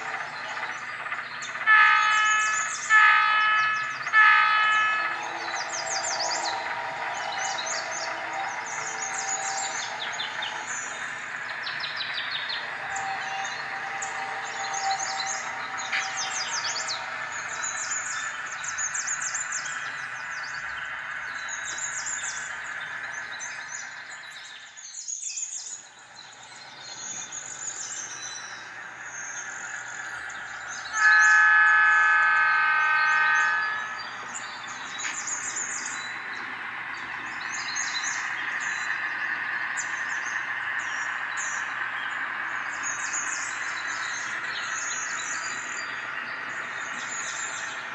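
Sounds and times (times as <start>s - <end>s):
birds chirping: 0.0s - 47.9s
diesel locomotive engine running: 0.0s - 47.9s
locomotive horn blast: 1.6s - 11.6s, 12.5s - 18.7s, 30.8s - 35.2s.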